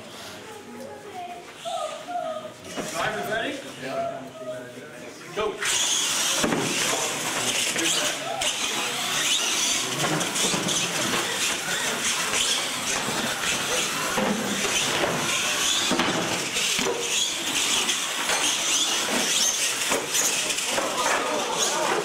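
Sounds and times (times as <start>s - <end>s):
toy truck motors whining: 5.6s - 22.0s
tyre noise on concrete: 5.8s - 22.0s.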